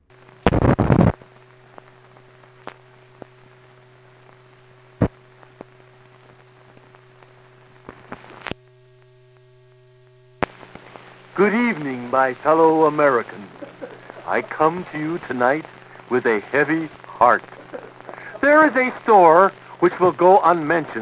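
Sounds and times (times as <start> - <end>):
crackling burst: 0.0 - 21.0
film projector hum: 0.0 - 21.0
clicks and pops from dust: 10.4 - 11.1.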